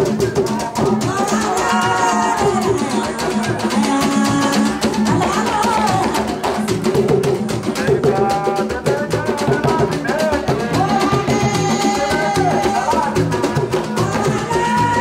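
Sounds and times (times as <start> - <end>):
hand drums beating: 0.0 - 15.0
woman singing into microphone: 1.0 - 6.7, 10.6 - 15.0.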